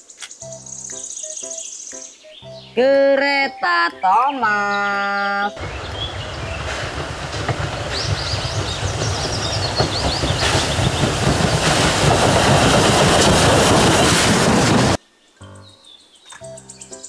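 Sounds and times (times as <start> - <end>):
rhythmic clatter of wheels on track: 5.6 - 15.0
steam locomotive hauling train: 5.6 - 15.0.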